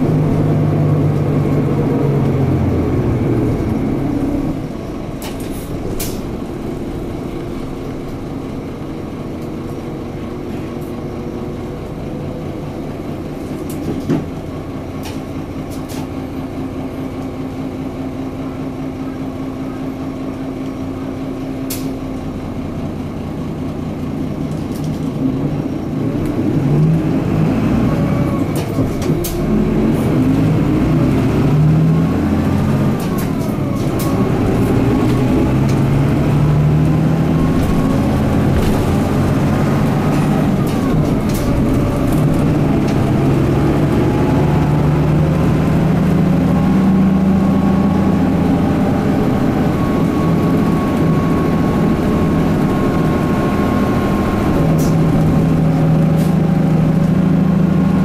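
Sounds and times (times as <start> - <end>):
bus diesel engine accelerating: 0.0 - 58.0.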